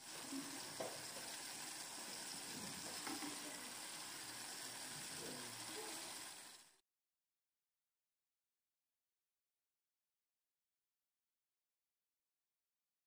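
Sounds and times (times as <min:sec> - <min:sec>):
oil sizzling in a frying pan: 0:00.0 - 0:06.8.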